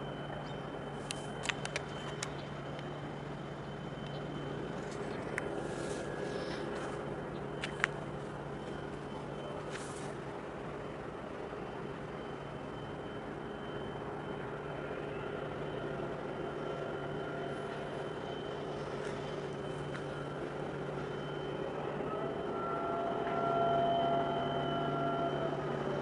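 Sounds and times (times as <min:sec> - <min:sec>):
distant diesel engines droning: 0:00.0 - 0:26.0
faint high whine: 0:00.0 - 0:26.0
sharp clicks: 0:01.1 - 0:02.4.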